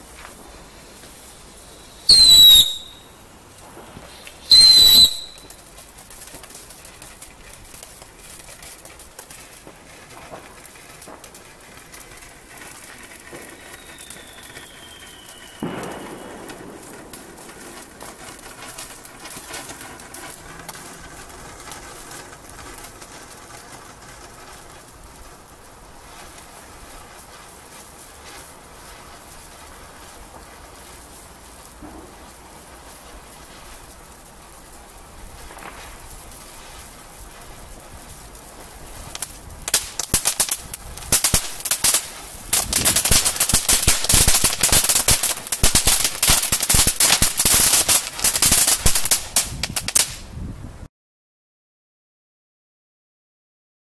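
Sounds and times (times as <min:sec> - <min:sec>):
loud firework crack: 0:00.0 - 0:50.5
firework fountain crackling hiss: 0:00.0 - 0:50.9
whistle falling in pitch: 0:02.1 - 0:03.0, 0:04.5 - 0:05.5, 0:13.5 - 0:16.4.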